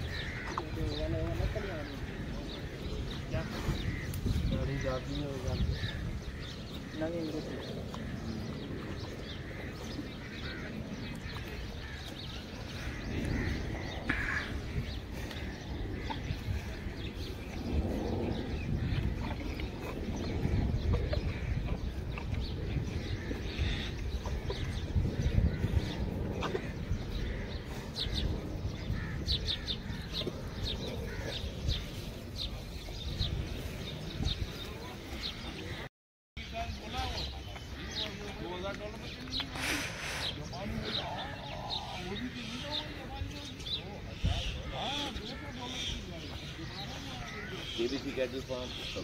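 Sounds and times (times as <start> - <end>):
low rumbling noise: 0.0 - 35.9
small birds chirping: 0.0 - 49.0.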